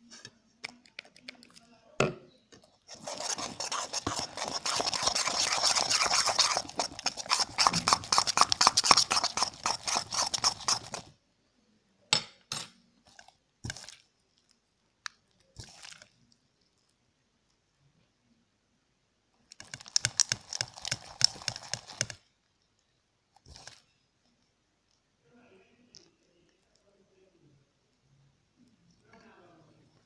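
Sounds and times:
slime squishing: 2.6s - 11.2s, 13.0s - 17.0s, 19.5s - 22.3s, 23.4s - 24.0s.

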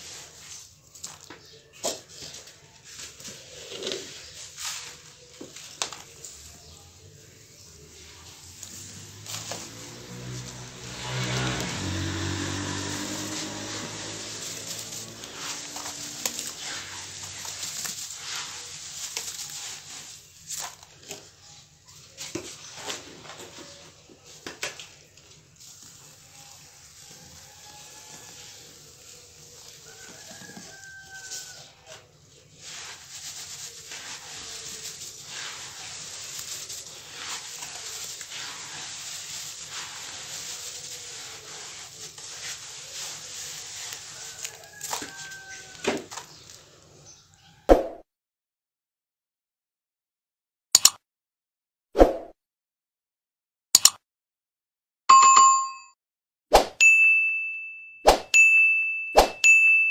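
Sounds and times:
sand and cement crunching: 0.0s - 46.9s
powder pouring hiss: 3.7s - 20.8s, 25.1s - 31.6s, 32.3s - 45.8s.

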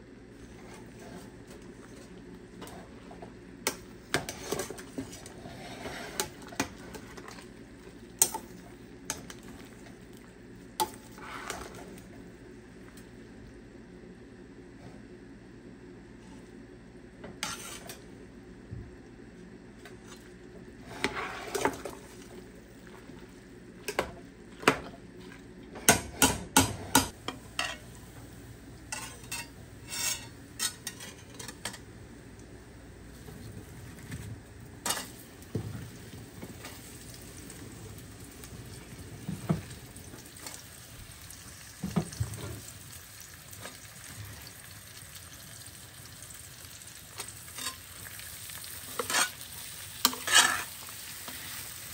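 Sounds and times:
utensil stirring food in pot: 48.9s - 51.5s.

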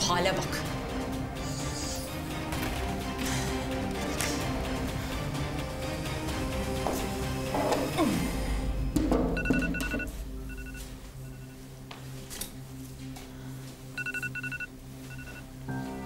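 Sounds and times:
phone keypad beeps: 9.4s - 10.8s, 14.0s - 15.4s.

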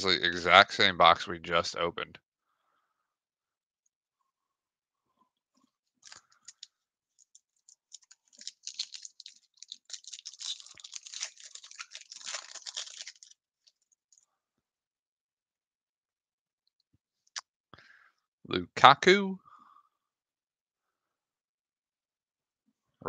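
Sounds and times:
foil wrapper tearing and crinkling: 6.0s - 13.9s.

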